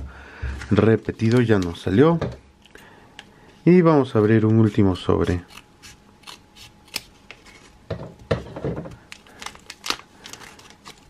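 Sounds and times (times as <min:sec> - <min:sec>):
foil wrapper crinkling: 0:00.8 - 0:02.0, 0:08.8 - 0:11.0
scissors snipping foil: 0:05.3 - 0:07.1, 0:09.1 - 0:11.0.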